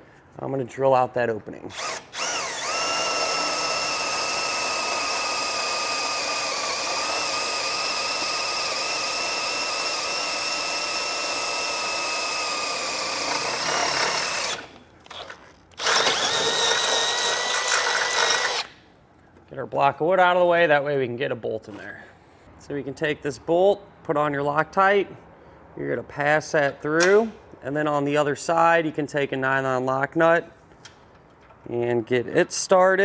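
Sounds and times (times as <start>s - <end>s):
cordless drill whining: 1.7s - 18.8s.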